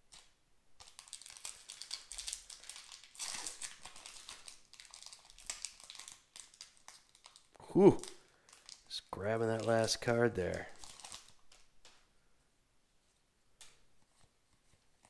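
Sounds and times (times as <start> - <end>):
foil wrapper crinkling: 0.1 - 12.0.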